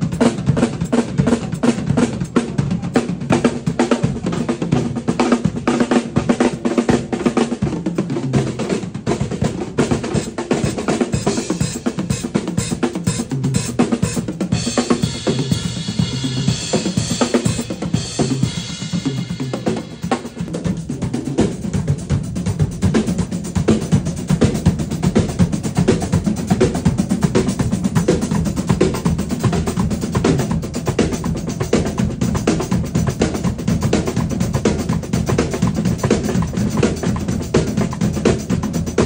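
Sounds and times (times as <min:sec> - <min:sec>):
rapid drum strokes: 0:00.0 - 0:39.0
heavy cymbal wash: 0:11.2 - 0:20.5.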